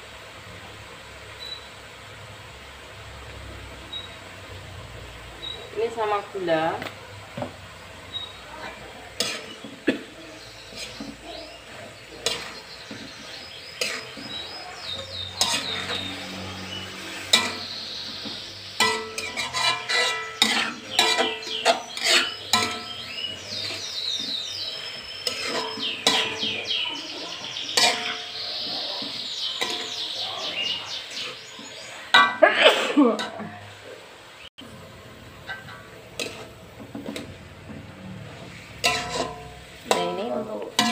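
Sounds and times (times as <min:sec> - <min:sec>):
metal spatula scraping a wok: 0:08.0 - 0:32.4, 0:35.4 - 0:40.9.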